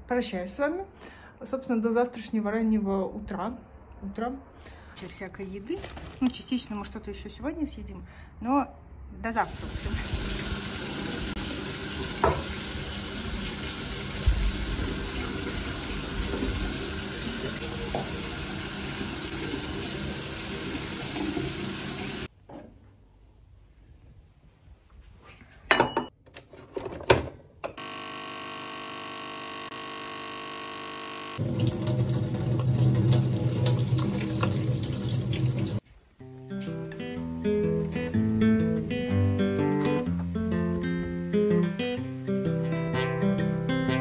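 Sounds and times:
tap water running: 9.5s - 22.3s, 31.4s - 35.8s
coffee machine pump buzzing: 27.7s - 32.8s.

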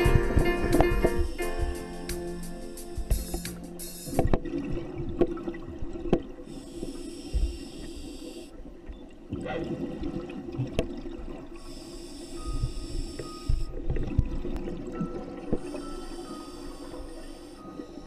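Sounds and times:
regulator hissing inhalation: 6.5s - 8.5s, 11.6s - 13.7s, 15.6s - 17.7s.

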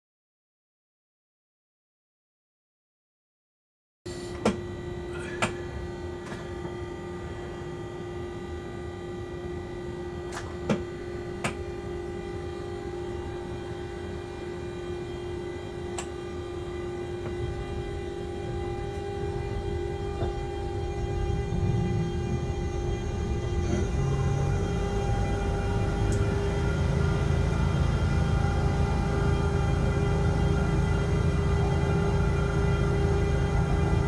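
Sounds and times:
locomotive equipment humming: 4.1s - 34.0s
train rumbling as it moves: 15.6s - 34.0s.

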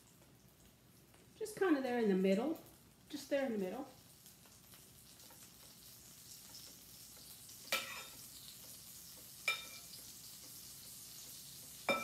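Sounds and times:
butter sizzling in skillet: 0.0s - 12.0s
spoon clinking against glass bowl: 9.5s - 9.9s.

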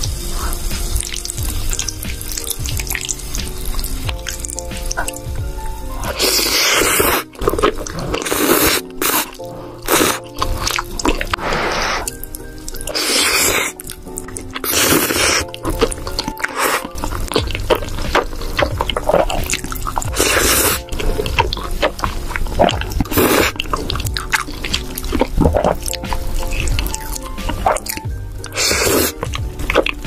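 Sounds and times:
wet mouth clicks: 0.0s - 5.4s, 6.0s - 30.0s
background music: 0.0s - 30.0s
wet slurping of pasta: 5.9s - 30.0s.

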